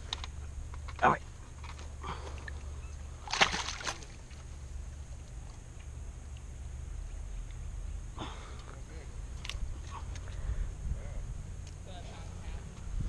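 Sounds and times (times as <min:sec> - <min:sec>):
low steady rumble: 0:00.0 - 0:13.0
water splashing in shallows: 0:03.2 - 0:04.5.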